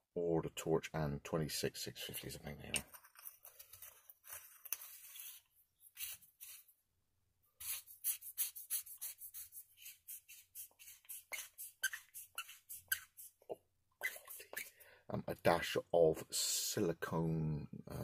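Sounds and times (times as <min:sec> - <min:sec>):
flashlight threads scraping: 0:09.4 - 0:13.3.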